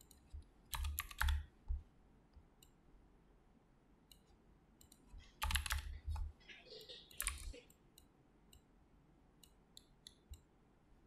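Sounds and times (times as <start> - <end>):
mouse and keyboard clicks: 0.0 - 1.8, 4.1 - 6.3, 7.1 - 8.7.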